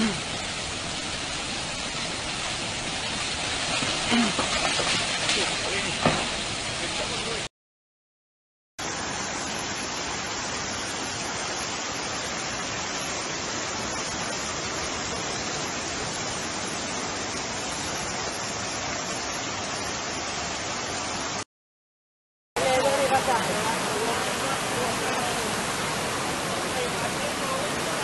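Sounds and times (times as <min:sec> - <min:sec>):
floodwater rushing: 0:00.0 - 0:07.5, 0:08.8 - 0:21.4, 0:22.6 - 0:28.0.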